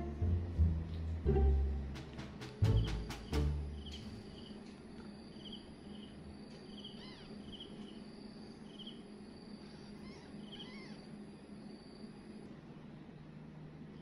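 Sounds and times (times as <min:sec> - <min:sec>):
low steady hum: 0:00.0 - 0:14.0
insect chirping in pulses: 0:02.7 - 0:12.6
kittens mewing: 0:09.8 - 0:11.1.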